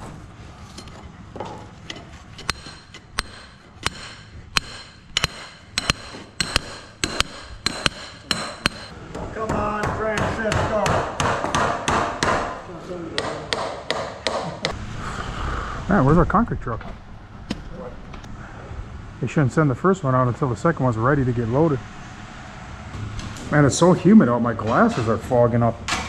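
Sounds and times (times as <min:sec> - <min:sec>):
hammer striking steel stakes: 0:02.4 - 0:12.6, 0:13.2 - 0:14.8.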